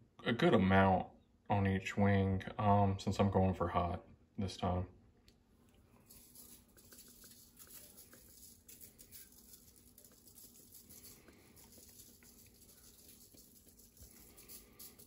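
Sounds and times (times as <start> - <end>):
spice shaker pattering: 6.0 - 15.0.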